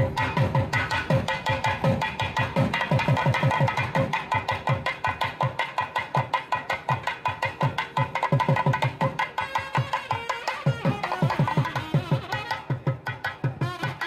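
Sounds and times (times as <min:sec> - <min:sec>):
reed instrument melody: 0:09.2 - 0:14.0.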